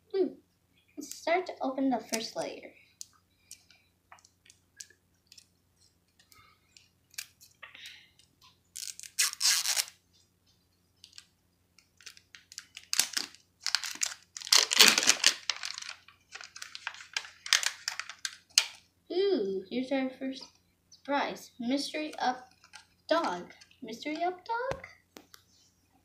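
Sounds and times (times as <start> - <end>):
plastic wrapping crinkling and tearing: 8.8 - 10.0, 11.0 - 18.8, 22.4 - 23.4.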